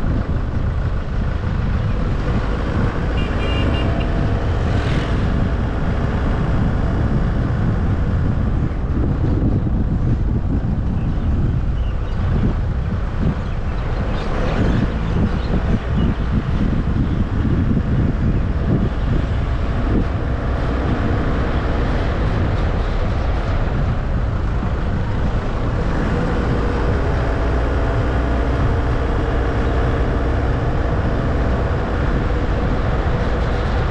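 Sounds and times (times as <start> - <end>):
car driving on paved road: 0.0 - 33.9.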